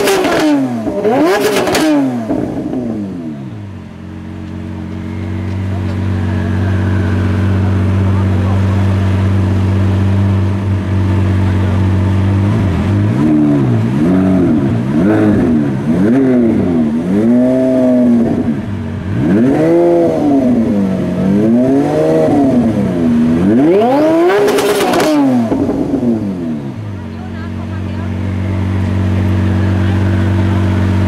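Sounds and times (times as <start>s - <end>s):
exhaust crackles: 0.0s - 31.0s
sports car engine revving: 0.0s - 31.0s.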